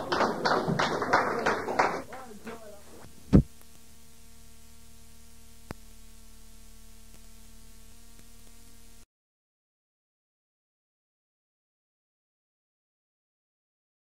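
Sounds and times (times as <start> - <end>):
recording hiss and hum: 0.0 - 9.1.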